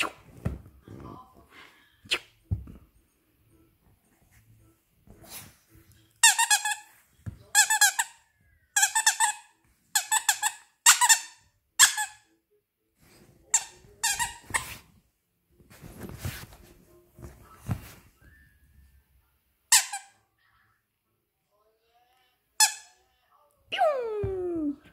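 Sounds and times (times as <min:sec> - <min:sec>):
toy squeaker squeaking: 0:07.5 - 0:12.2.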